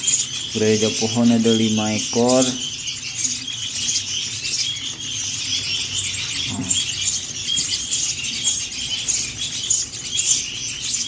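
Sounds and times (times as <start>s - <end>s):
nestlings cheeping: 0.0s - 11.0s.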